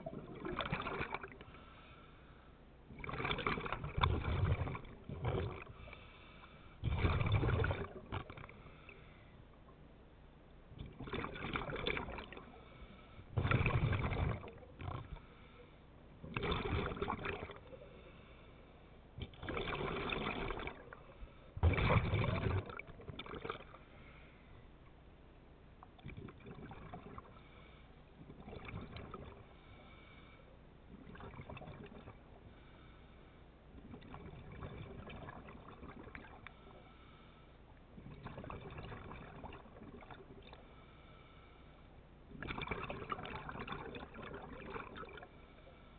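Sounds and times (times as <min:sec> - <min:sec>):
underwater exhaled bubbles rushing: 0:00.0 - 0:01.4, 0:02.9 - 0:06.0, 0:06.8 - 0:08.6, 0:10.8 - 0:12.6, 0:13.3 - 0:15.2, 0:16.2 - 0:17.9, 0:19.2 - 0:23.8, 0:26.0 - 0:27.4, 0:28.2 - 0:29.5, 0:30.9 - 0:32.3, 0:33.8 - 0:36.5, 0:38.0 - 0:40.6, 0:42.3 - 0:45.3.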